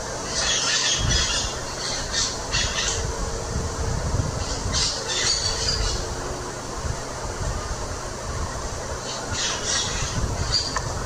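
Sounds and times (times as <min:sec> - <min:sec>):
parrots squawking: 0:00.3 - 0:03.0, 0:09.0 - 0:10.8.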